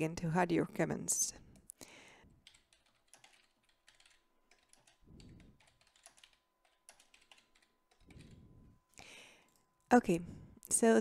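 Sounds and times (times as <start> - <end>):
keyboard typing: 2.4 - 8.5.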